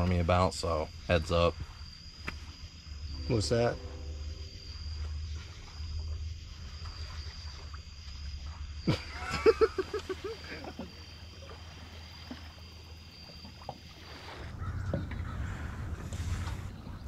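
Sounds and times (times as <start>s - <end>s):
night insects trilling: 0.0s - 17.0s
low rushing noise: 3.1s - 6.0s
short pulsed calls: 3.1s - 6.1s
low rumble: 3.1s - 6.8s.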